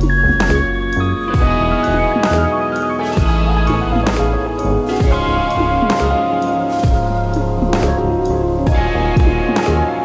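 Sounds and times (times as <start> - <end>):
drum beat: 1.4 - 8.1.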